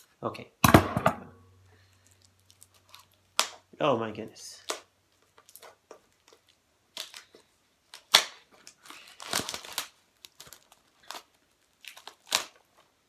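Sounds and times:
packaging crinkling and tearing: 0:01.8 - 0:03.7, 0:04.6 - 0:13.0.

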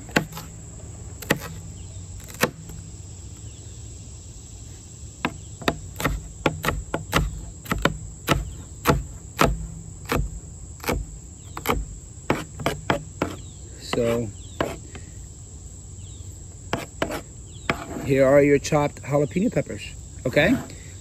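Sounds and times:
knife chopping on cutting board: 0:05.2 - 0:11.0, 0:11.6 - 0:13.4.

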